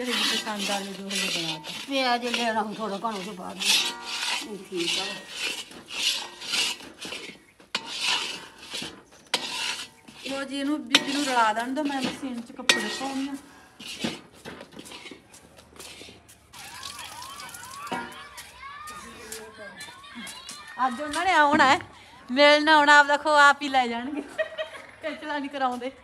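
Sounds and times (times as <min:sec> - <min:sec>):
metal spatula scraping metal pan: 0:00.0 - 0:16.2.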